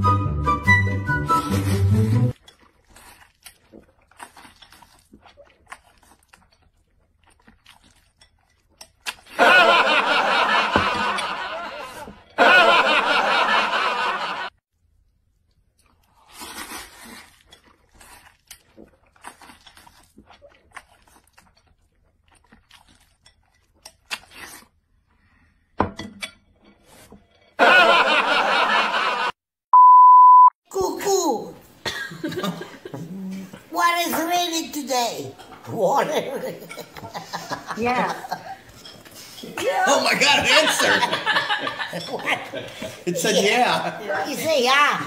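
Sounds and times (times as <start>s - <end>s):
slurping and chewing noodles: 1.3s - 9.5s, 14.9s - 25.8s
loud laughter: 9.4s - 14.5s, 27.6s - 29.4s, 39.7s - 44.0s.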